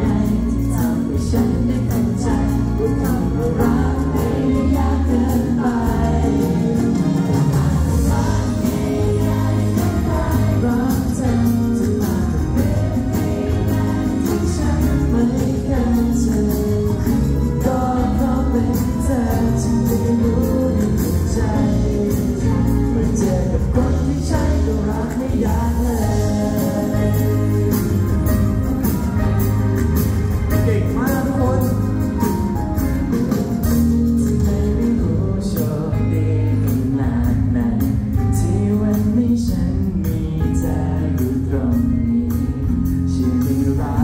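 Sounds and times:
man singing into a microphone: 0.0s - 29.3s, 30.5s - 32.5s, 34.0s - 44.0s
amplified band backing: 0.0s - 44.0s.

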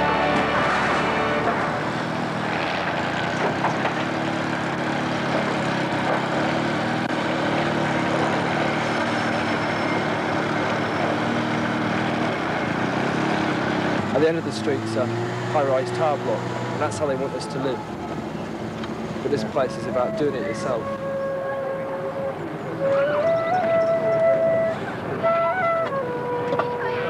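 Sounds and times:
music: 0.0s - 2.0s, 19.6s - 27.0s
engine droning: 0.0s - 27.0s.

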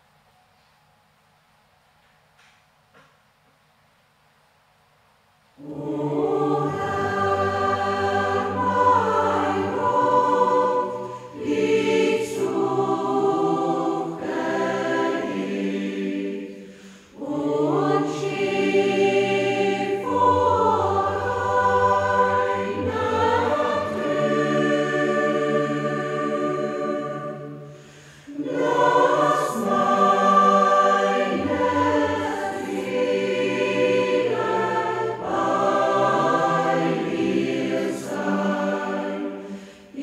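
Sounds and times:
choir singing: 5.6s - 40.0s.

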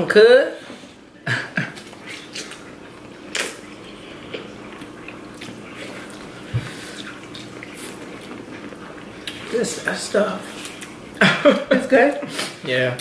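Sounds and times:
faint steady hum: 0.0s - 13.0s
wet chewing: 1.7s - 11.2s.

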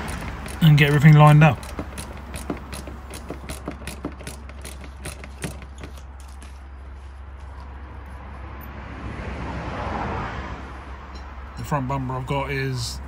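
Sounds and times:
screwdriver clicking: 0.0s - 6.0s.

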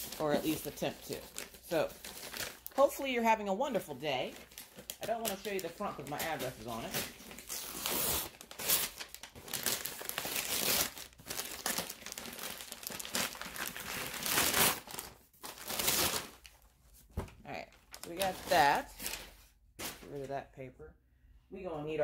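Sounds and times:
paper tearing and crinkling: 4.5s - 16.5s.

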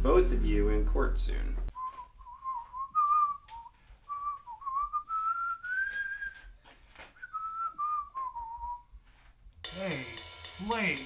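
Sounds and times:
person whistling a tune: 1.8s - 6.4s, 7.2s - 8.9s.

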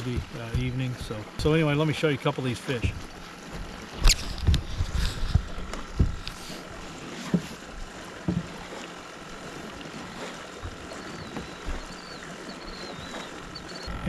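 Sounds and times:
dull knocks on boat deck: 0.0s - 0.9s, 5.3s - 6.3s, 8.2s - 8.6s
water: 0.0s - 14.0s
wind: 0.0s - 14.0s.

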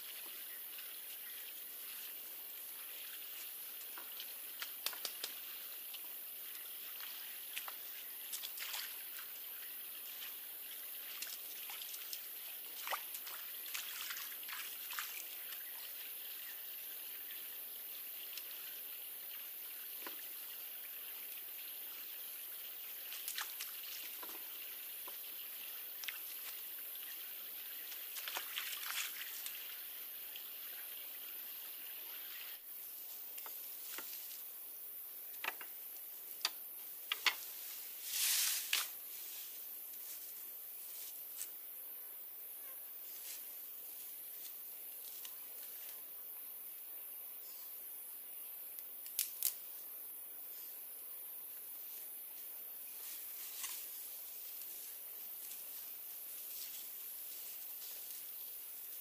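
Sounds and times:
faint high hiss: 0.0s - 59.0s
water trickling and sloshing: 5.9s - 16.5s, 22.5s - 32.6s.

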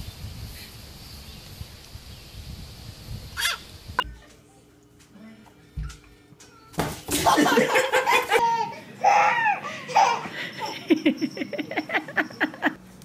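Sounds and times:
loud laughter: 7.2s - 12.8s.

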